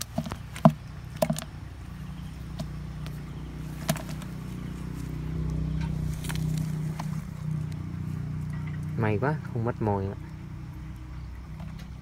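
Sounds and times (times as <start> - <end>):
motor engine humming: 0.0 - 12.0.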